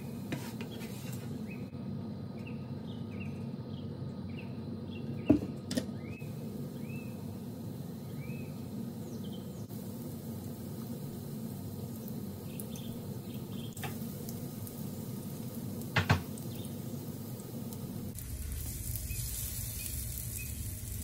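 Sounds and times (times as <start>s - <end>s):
steady low hum: 0.0s - 21.0s
bread frying in oil: 5.1s - 21.0s
sharp knocks on a pan: 15.9s - 16.3s.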